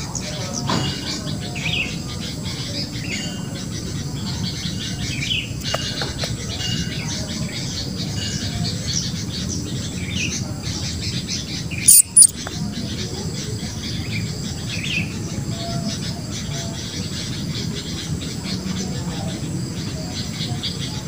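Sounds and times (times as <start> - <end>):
birds chirping: 9.0 - 13.1.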